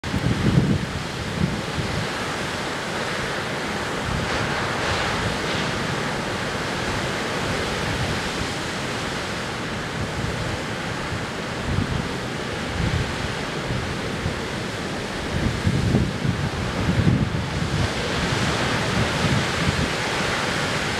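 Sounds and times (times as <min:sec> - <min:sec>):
wind rumbling on microphone: 0:00.0 - 0:20.9
waves breaking on a beach: 0:00.1 - 0:20.9.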